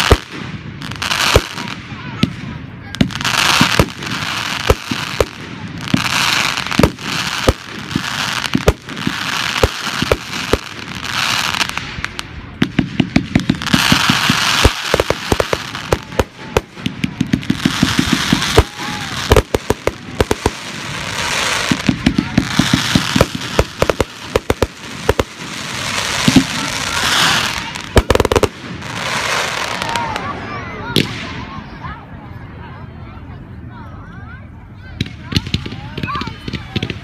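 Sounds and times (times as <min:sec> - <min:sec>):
rapid firework barrage: 0:00.0 - 0:31.5
firework shells bursting: 0:12.6 - 0:28.8.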